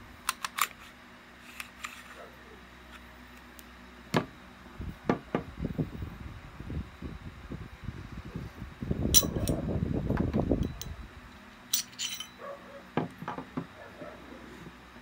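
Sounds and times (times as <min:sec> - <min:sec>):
rubbing and handling noise: 0:00.6 - 0:03.1.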